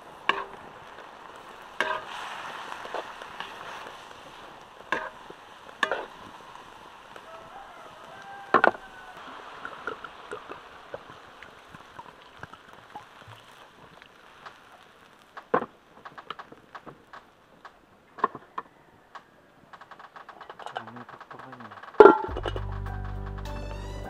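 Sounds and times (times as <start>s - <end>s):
meat and onions sizzling in a wok: 0.0s - 12.0s.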